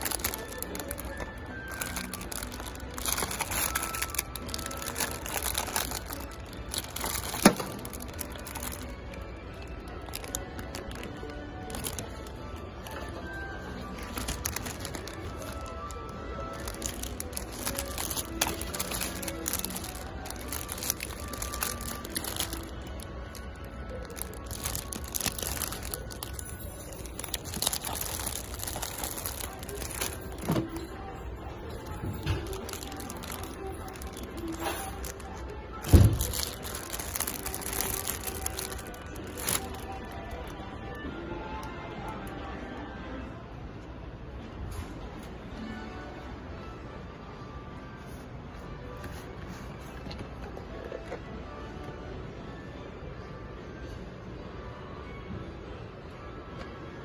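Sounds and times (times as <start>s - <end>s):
plastic bags crinkling: 0.0s - 40.8s.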